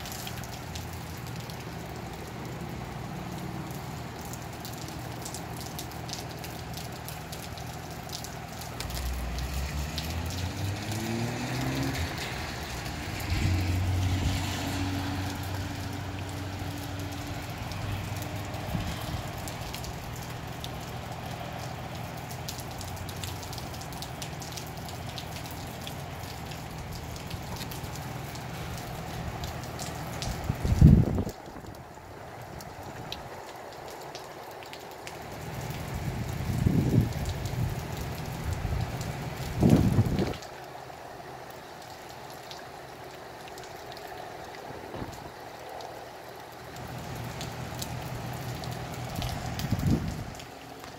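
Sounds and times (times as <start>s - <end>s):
drips ticking: 0.0s - 13.4s, 14.9s - 50.9s
steady rain falling: 0.0s - 50.9s
vehicle engine: 8.6s - 22.0s.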